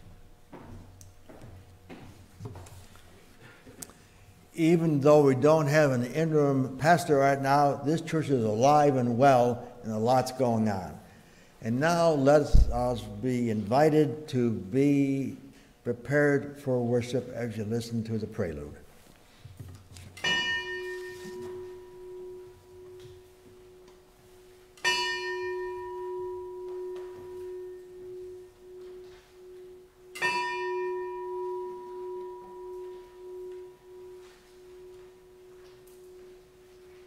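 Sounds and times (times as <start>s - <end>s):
singing bowl ringing: 20.2s - 37.0s.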